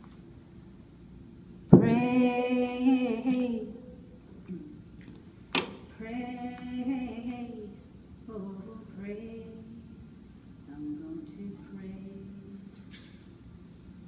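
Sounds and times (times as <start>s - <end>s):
woman singing unaccompanied: 1.7s - 4.8s, 5.9s - 10.0s, 10.6s - 12.8s.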